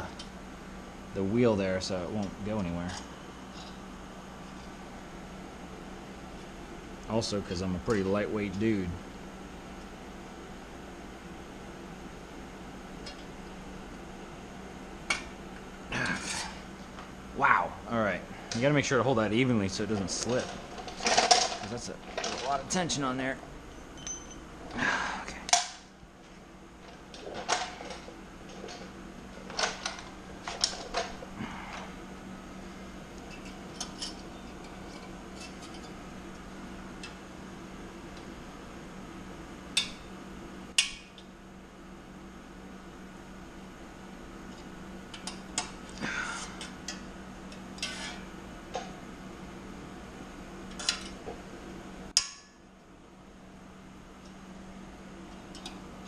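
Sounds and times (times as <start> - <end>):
faint steady hum: 0.0 - 56.0
metal clinks: 23.9 - 24.4.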